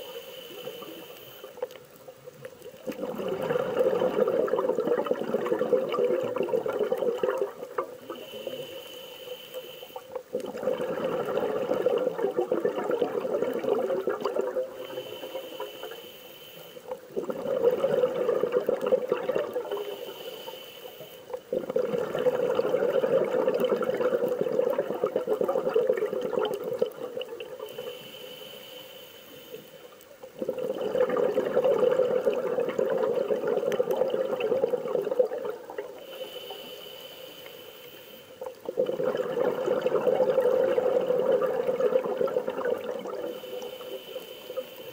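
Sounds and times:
scuba regulator exhalation bubbling: 2.8s - 8.7s, 10.2s - 15.3s, 17.0s - 19.9s, 21.4s - 28.0s, 30.3s - 36.2s, 38.5s - 43.8s
inhalation with high hiss: 8.1s - 10.2s, 14.8s - 16.9s, 19.7s - 21.4s, 27.7s - 30.0s, 36.0s - 38.5s, 43.2s - 44.9s.

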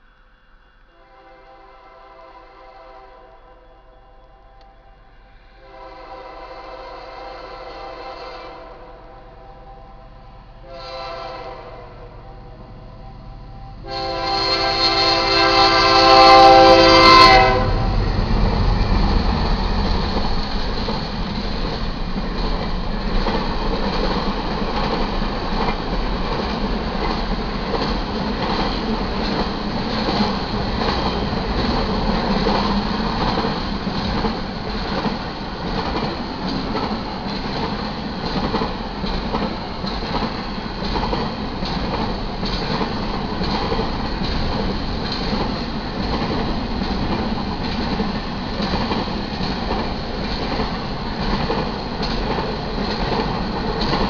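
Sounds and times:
locomotive horn blast: 0.9s - 4.6s, 5.6s - 18.1s
freight train cars rolling: 10.6s - 54.0s.

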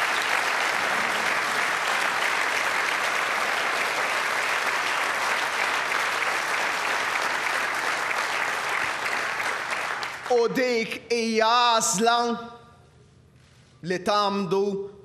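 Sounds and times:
crowd applauding: 0.0s - 10.7s.

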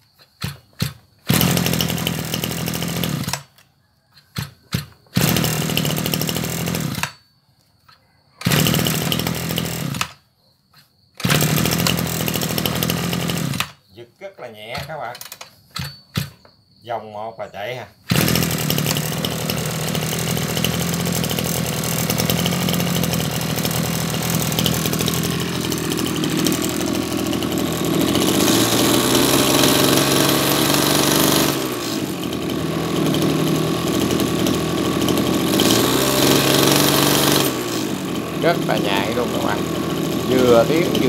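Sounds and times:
brush cutter engine revving: 0.4s - 3.6s, 4.2s - 7.2s, 8.4s - 10.2s, 11.2s - 13.8s, 18.0s - 41.0s.

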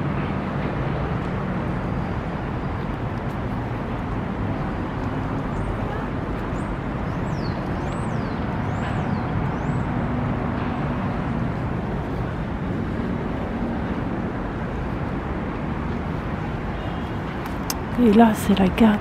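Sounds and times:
city traffic noise: 0.0s - 19.0s.

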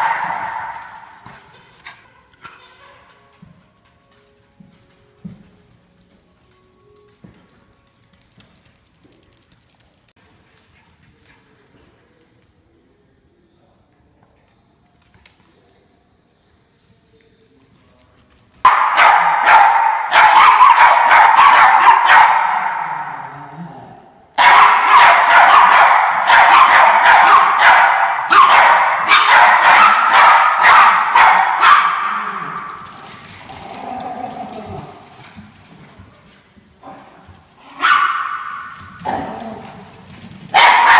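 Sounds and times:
dogs barking rapidly: 0.0s - 1.3s, 18.6s - 23.2s, 24.4s - 32.8s, 37.7s - 39.6s, 40.5s - 40.9s.

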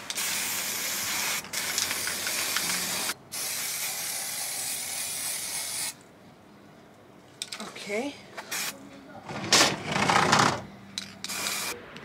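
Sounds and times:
spray can hissing: 0.0s - 6.0s, 8.5s - 8.8s, 11.2s - 11.8s.

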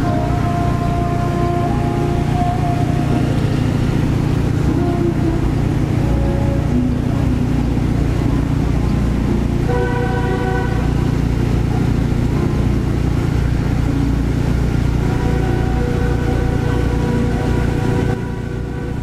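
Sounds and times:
faint pitched sound: 0.0s - 9.8s
city ambience rumble: 0.0s - 19.0s.

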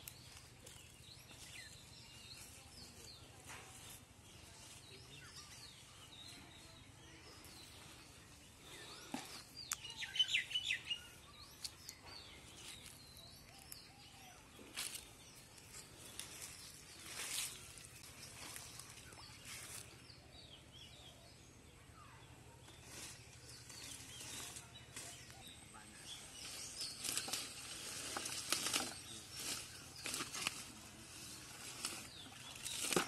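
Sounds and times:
wet plant stems rustling: 14.6s - 20.0s, 26.4s - 33.0s.

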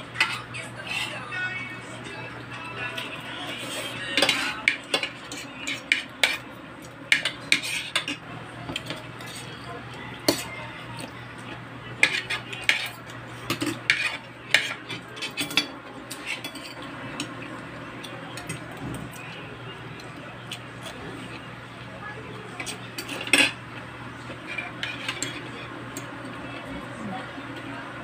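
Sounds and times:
cutlery clinking on plates: 4.0s - 9.4s, 12.0s - 17.4s, 22.6s - 23.6s, 24.3s - 26.1s.

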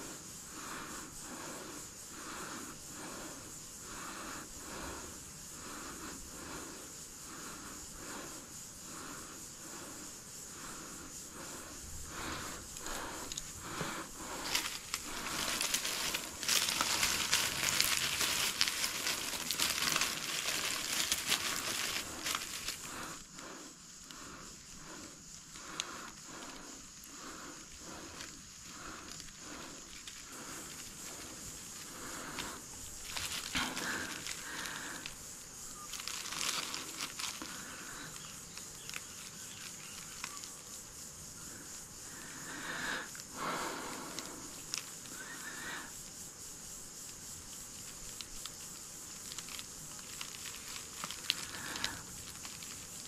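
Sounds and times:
dry leaves crinkling and crackling: 14.2s - 23.1s, 28.2s - 35.2s, 35.8s - 40.6s, 48.0s - 53.0s.

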